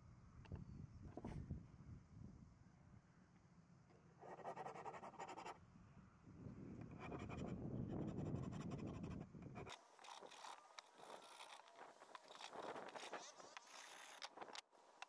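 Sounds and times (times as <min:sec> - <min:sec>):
file rasping on steel chain: 0:07.0 - 0:14.6.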